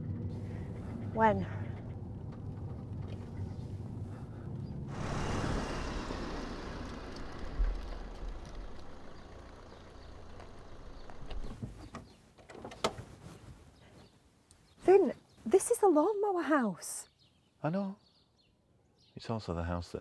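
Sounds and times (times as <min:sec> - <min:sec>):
vehicle driving past: 0:02.8 - 0:11.5.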